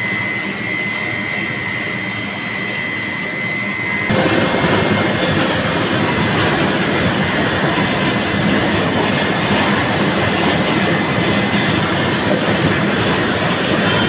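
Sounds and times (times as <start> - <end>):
oil press mechanical din: 4.1 - 14.0.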